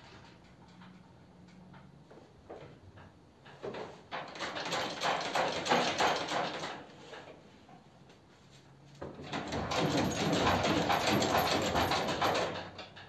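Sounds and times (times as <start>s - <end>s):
metal parts scraping and knocking: 9.2s - 13.0s.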